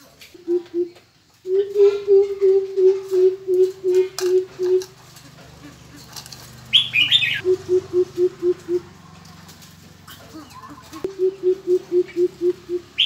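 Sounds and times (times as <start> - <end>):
bird deep hooting call: 0.4 - 4.9, 6.7 - 8.9, 11.1 - 13.0
higher chirping call: 6.7 - 8.9.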